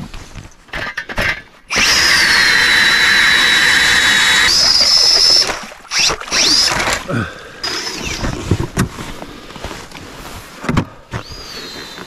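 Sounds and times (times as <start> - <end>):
ice auger drill whining: 1.7 - 8.7, 11.2 - 12.0.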